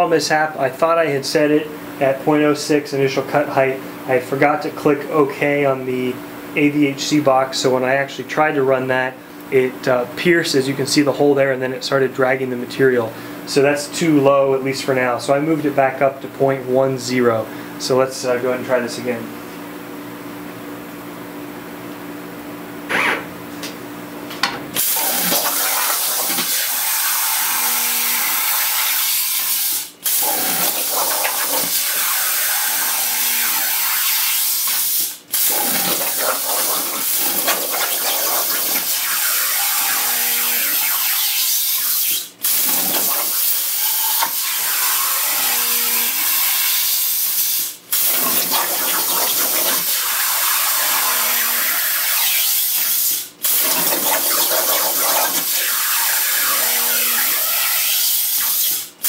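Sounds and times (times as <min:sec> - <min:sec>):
plasma torch hissing: 0:24.8 - 0:27.6, 0:28.2 - 0:45.5, 0:46.1 - 0:58.9.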